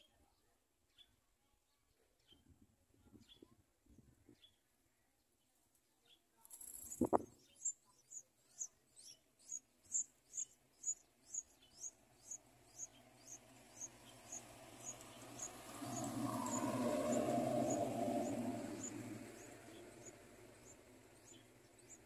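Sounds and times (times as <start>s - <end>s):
flutter or rustle: 6.4s - 7.4s
nestlings peeping: 6.6s - 16.7s, 18.8s - 22.0s.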